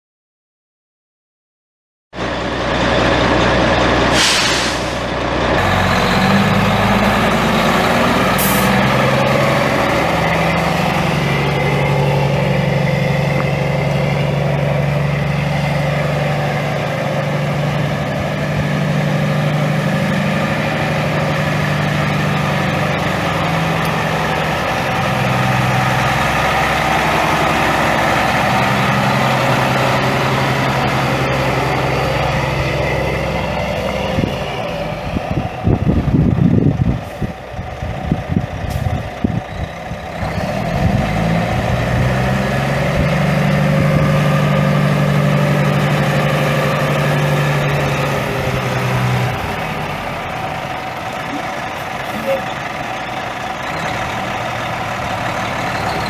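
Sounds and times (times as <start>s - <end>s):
diesel truck engine running: 2.2s - 56.0s
air hissing: 4.1s - 5.1s.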